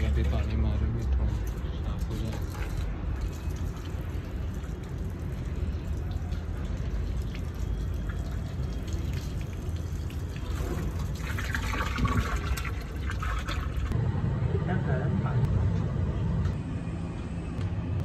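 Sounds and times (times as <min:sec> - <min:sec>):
water pouring and splashing: 0:00.0 - 0:14.0
steady low rumble: 0:13.8 - 0:18.0.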